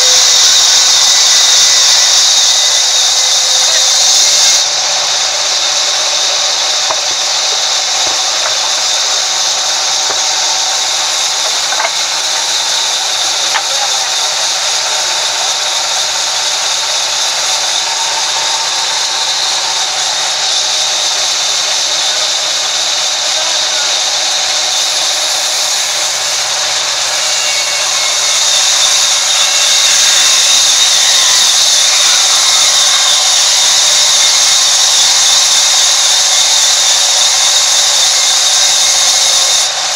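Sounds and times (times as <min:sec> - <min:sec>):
band saw ripping through log: 0:00.0 - 0:21.9.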